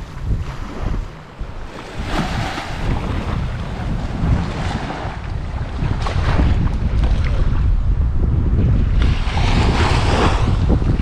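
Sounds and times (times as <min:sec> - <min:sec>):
sea waves washing on beach: 0:00.0 - 0:07.8, 0:08.9 - 0:11.0
wind buffeting microphone: 0:00.0 - 0:11.0.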